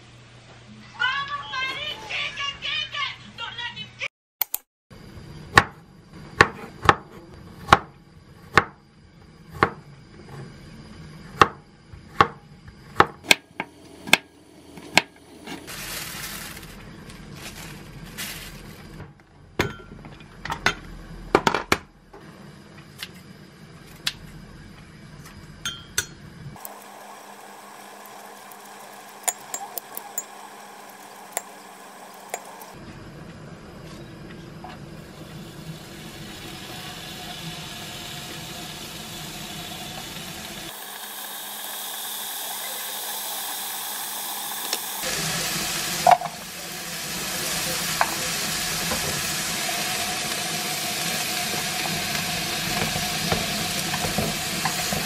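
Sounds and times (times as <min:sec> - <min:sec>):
cling wrap crinkling: 0:15.7 - 0:19.0.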